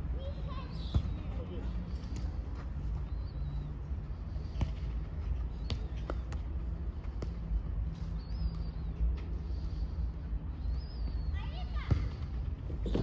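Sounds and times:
low outdoor rumble: 0.0s - 13.0s
football being kicked: 0.9s - 2.4s, 5.6s - 7.6s, 11.8s - 13.0s.

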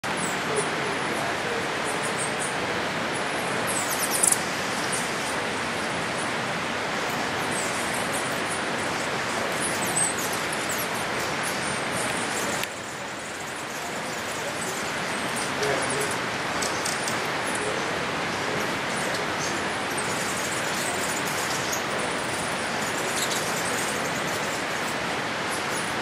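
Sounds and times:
waterfall roaring: 0.0s - 26.0s
high bird chirps: 19.9s - 24.6s.

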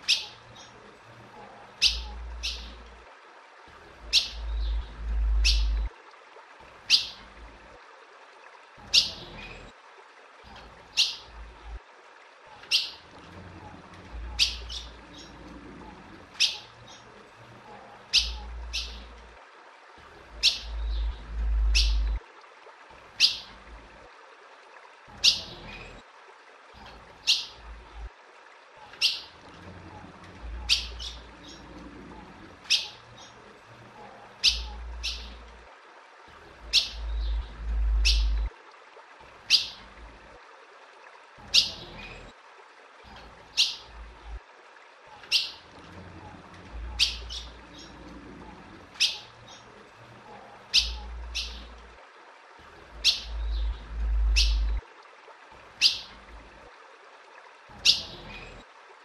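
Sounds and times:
bird chip calls: 0.0s - 0.8s, 1.8s - 2.8s, 4.1s - 5.9s, 12.6s - 13.0s, 14.3s - 15.4s, 16.4s - 17.0s, 18.1s - 19.1s, 20.4s - 22.2s, 23.2s - 23.5s, 26.8s - 27.6s, 29.0s - 29.3s, 32.7s - 33.4s, 34.4s - 35.4s, 36.7s - 38.5s, 39.5s - 39.8s, 45.2s - 45.6s, 46.9s - 48.0s, 49.0s - 49.6s, 50.7s - 51.7s, 53.0s - 54.8s, 55.8s - 56.1s, 57.8s - 58.4s
low rumble: 37.0s - 38.5s, 53.3s - 54.8s.

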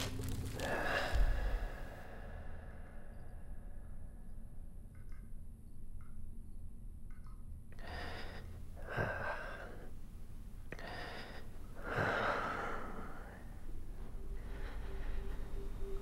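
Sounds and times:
man breathing heavily: 0.0s - 3.2s, 10.7s - 16.0s.

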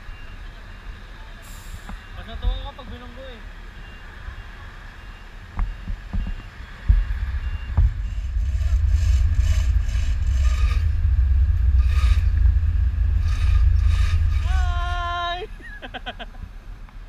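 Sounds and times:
faint short beeps: 3.8s - 9.0s
sharp knocks: 5.6s - 10.5s
steady low rumble: 5.6s - 17.0s.

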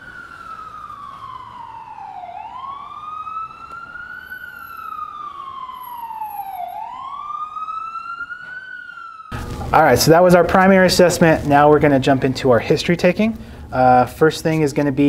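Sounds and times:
emergency siren wailing: 0.0s - 10.9s.

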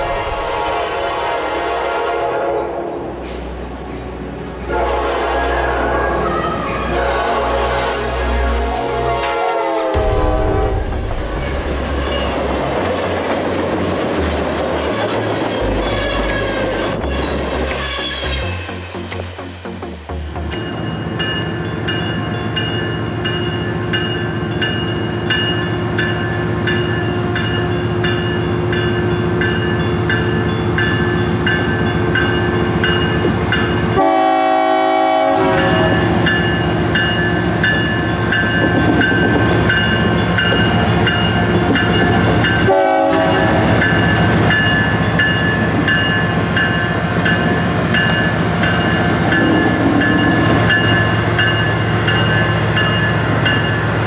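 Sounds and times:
train horn: 0.0s - 3.2s, 4.6s - 10.9s, 33.9s - 36.3s, 42.6s - 44.0s
freight train approaching: 0.0s - 54.0s
crossing signal bell ringing: 20.5s - 34.3s, 35.6s - 53.9s.

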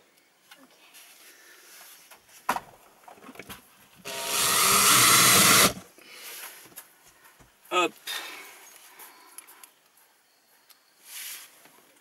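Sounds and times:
cordless drill driving screw: 4.1s - 5.8s.

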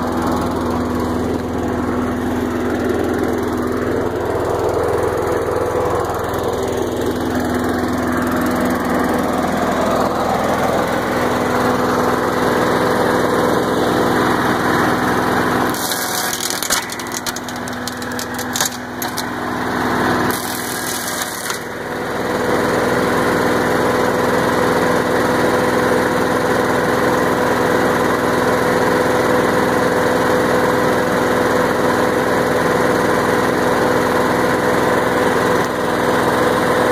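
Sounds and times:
small engine running: 0.0s - 36.9s
stick crackling in shredder: 15.7s - 19.6s, 20.3s - 21.9s.

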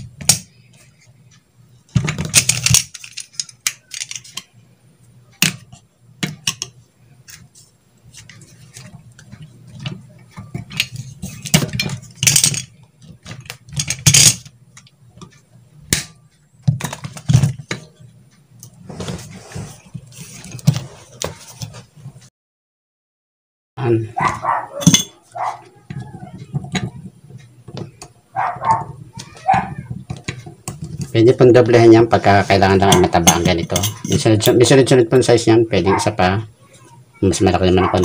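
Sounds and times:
tools clinking and rattling: 2.0s - 4.5s, 9.8s - 14.5s, 24.2s - 27.0s, 32.7s - 34.7s.

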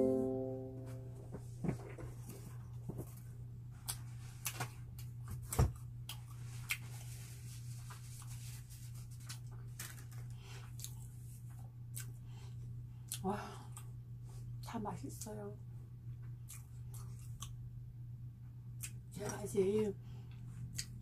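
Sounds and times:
low hum: 0.0s - 3.7s
clicks and crackles of eating bread: 2.2s - 15.4s, 16.1s - 17.8s, 18.5s - 19.4s, 20.3s - 21.0s.

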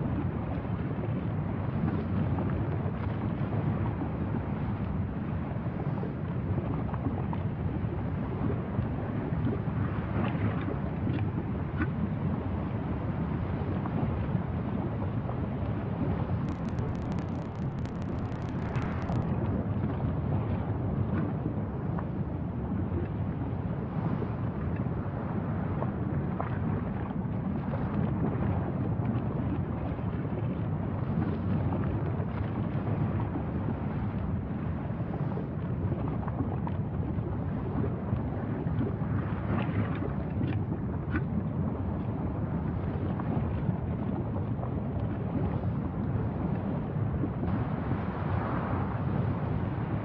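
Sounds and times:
low rumbling noise: 16.2s - 19.8s
faint ticks: 16.5s - 19.3s.

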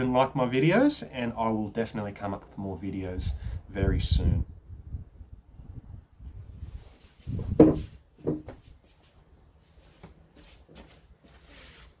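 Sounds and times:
furniture thump and rub: 7.3s - 8.7s
small knock: 7.6s - 8.6s.

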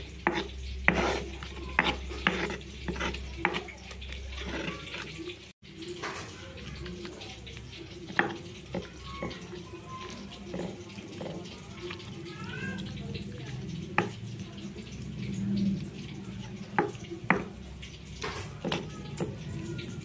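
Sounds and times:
wet mashing: 0.0s - 20.0s
stone pestle scraping in mortar: 0.2s - 5.2s.

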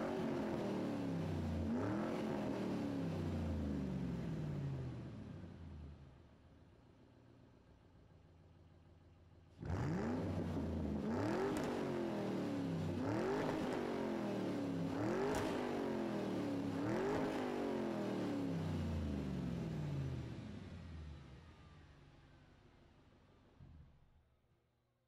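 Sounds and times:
car engine revving: 9.6s - 20.0s.

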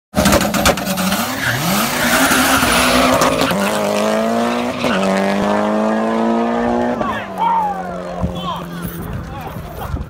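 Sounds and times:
race car engines accelerating: 0.2s - 10.0s
tyre squeal: 0.8s - 3.8s, 4.4s - 5.2s.

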